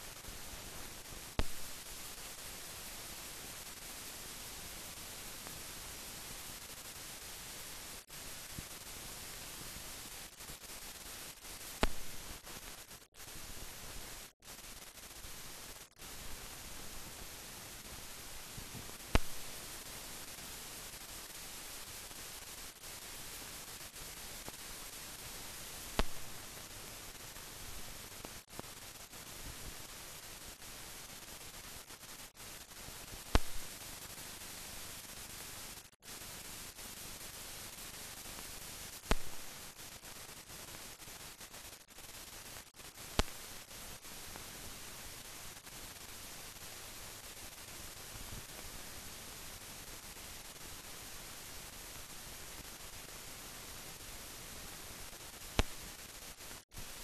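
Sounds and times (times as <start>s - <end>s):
film soundtrack hiss: 0.0s - 57.0s
sharp clicks: 19.1s - 19.4s, 33.3s - 33.7s.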